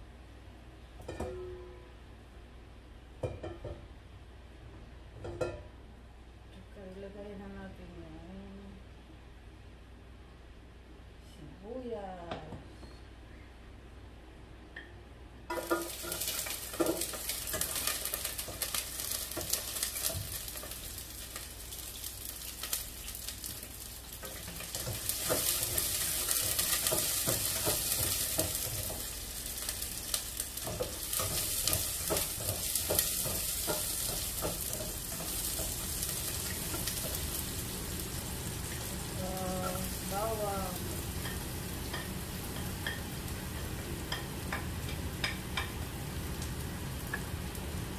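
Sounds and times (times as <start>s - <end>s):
onion sizzling in oil: 15.5s - 47.9s.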